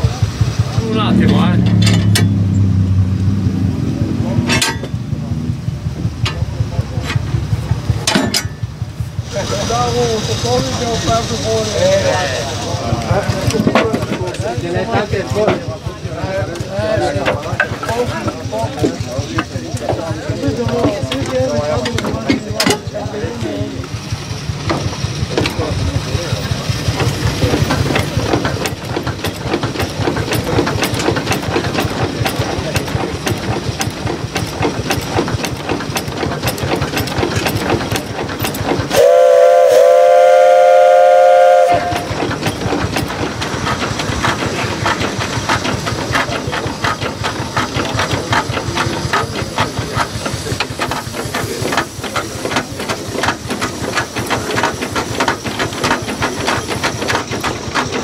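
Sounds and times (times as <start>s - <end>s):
steam traction engine running: 0.0s - 58.0s
steam hiss: 8.9s - 13.4s, 38.2s - 58.0s
steam whistle blowing: 38.9s - 42.2s.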